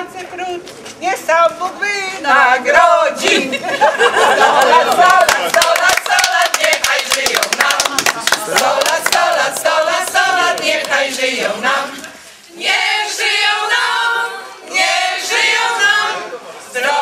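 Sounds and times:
group of people singing: 2.2 - 17.0
rhythmic hand clapping: 4.6 - 11.6.

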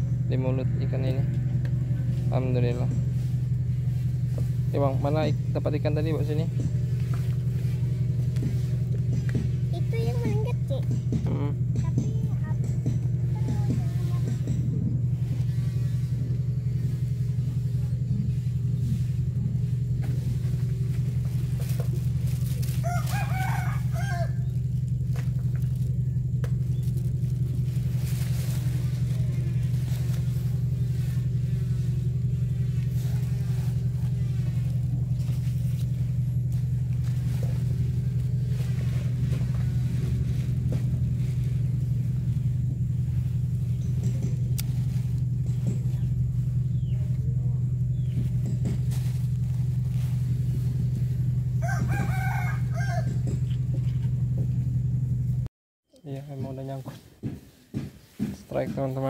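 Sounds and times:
low engine drone: 0.0 - 56.7
rooster crowing: 22.7 - 24.5, 51.5 - 53.4.

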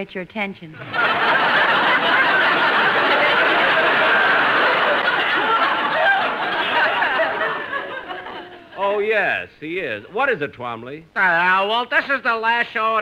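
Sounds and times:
audience laughing: 0.8 - 9.0.

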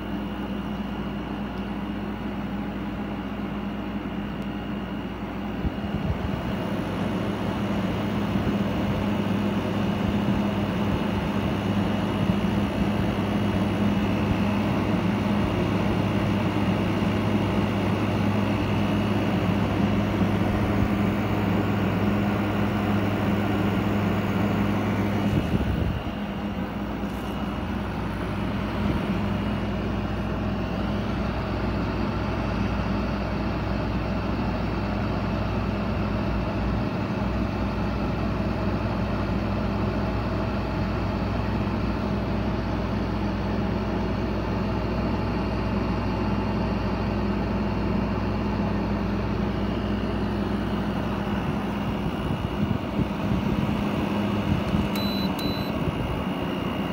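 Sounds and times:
air conditioner humming: 0.0 - 56.9
faint high whine: 54.7 - 56.9.

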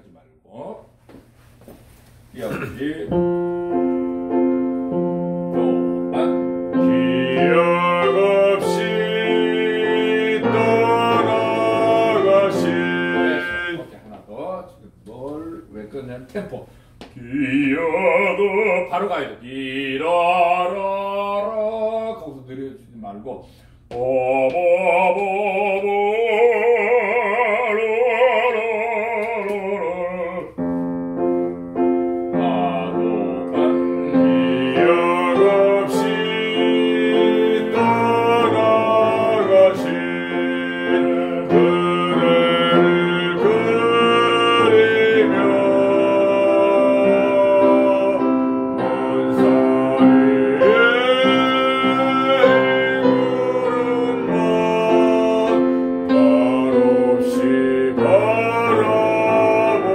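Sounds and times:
piano accompaniment: 2.4 - 14.2, 24.1 - 59.9
man singing classical song: 3.1 - 14.4, 17.1 - 22.7, 23.8 - 59.9.

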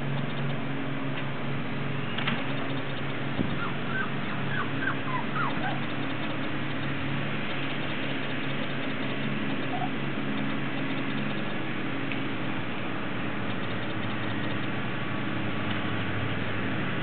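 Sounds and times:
steady low hum: 0.0 - 17.0
puppies yipping: 3.5 - 6.6, 8.8 - 10.0.

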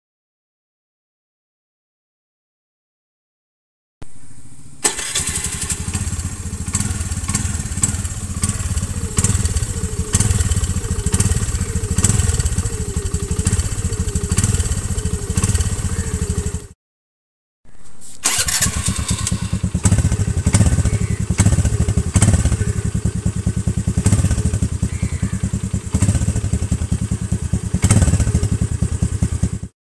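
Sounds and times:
scooter engine running: 4.8 - 16.8, 18.2 - 29.7.

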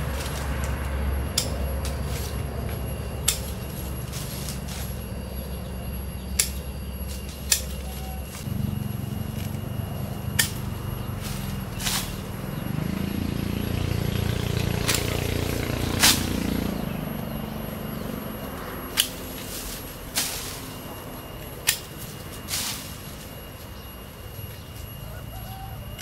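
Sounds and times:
pruning shears snipping twigs: 0.0 - 5.0, 6.4 - 8.4, 10.2 - 12.4, 14.8 - 15.3, 15.9 - 16.7, 18.9 - 20.8, 21.4 - 23.7
leafy branches rustling: 0.0 - 5.6, 6.4 - 25.2.

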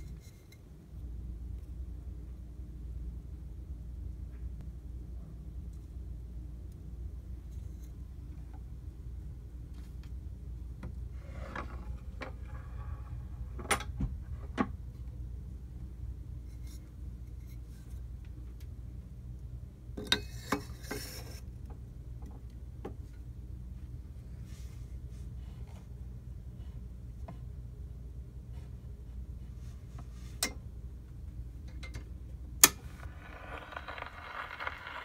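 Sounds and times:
scraping rub: 32.9 - 35.0.

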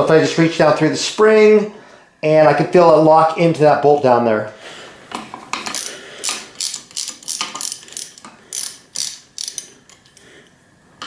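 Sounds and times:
ratchet wrench clicking: 5.6 - 10.2.

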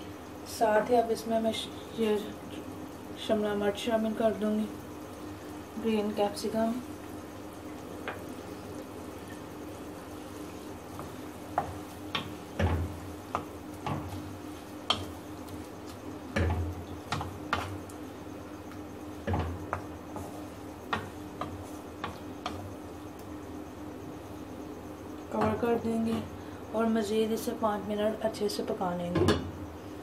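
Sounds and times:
steady low hum: 0.0 - 30.0
wooden spatula scraping a wok: 20.1 - 22.7.

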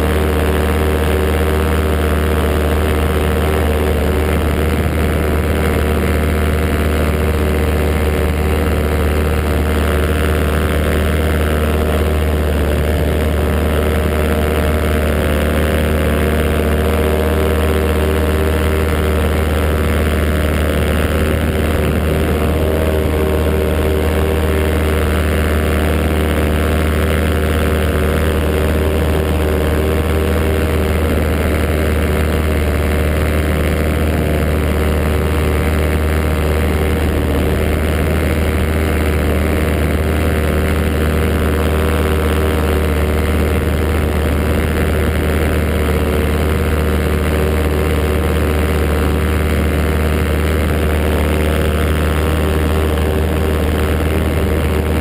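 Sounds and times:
paramotor engine droning: 0.0 - 55.0.

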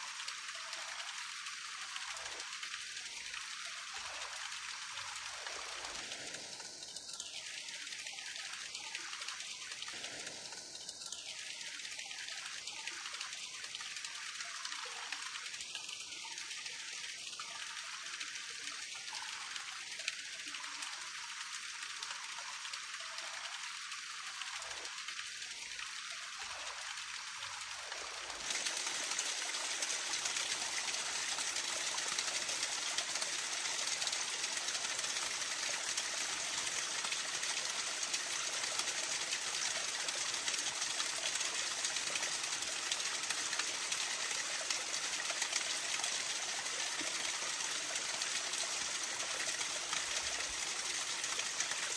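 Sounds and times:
flowing water rushing: 0.0 - 51.9.

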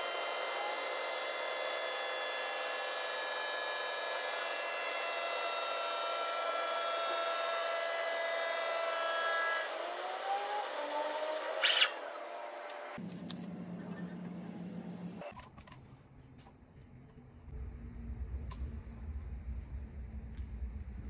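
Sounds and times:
wheel lathe whine and hiss: 0.0 - 13.0.

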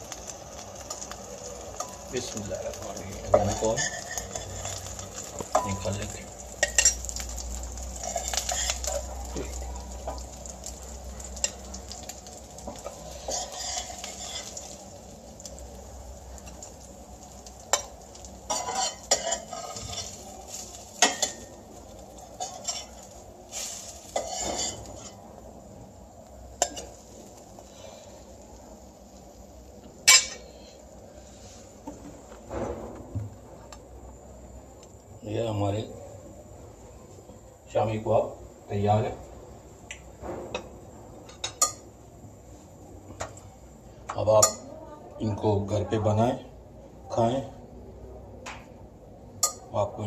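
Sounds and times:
food sizzling in oil: 0.0 - 47.6, 49.1 - 50.0
metal spoon clinking on pan: 3.3 - 6.0, 6.6 - 7.3, 18.5 - 21.6, 30.0 - 30.4, 41.3 - 41.9, 44.1 - 44.6, 49.4 - 49.7.

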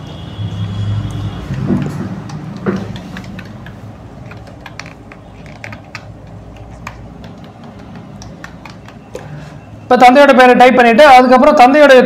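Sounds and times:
computer keyboard keys clicking: 1.0 - 9.4.

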